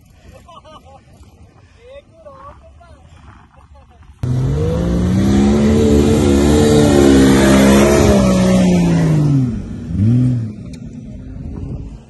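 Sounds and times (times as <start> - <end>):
car engine working hard: 4.2 - 11.3.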